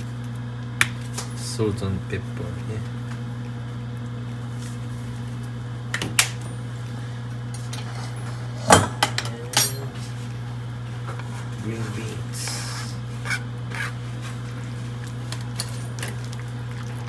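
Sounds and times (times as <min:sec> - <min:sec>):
steady low hum: 0:00.0 - 0:17.0
utensils clinking on pot: 0:08.7 - 0:10.0.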